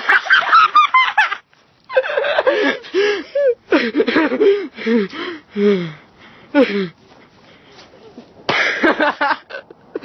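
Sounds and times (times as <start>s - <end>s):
woman laughing and gasping: 1.9s - 5.1s.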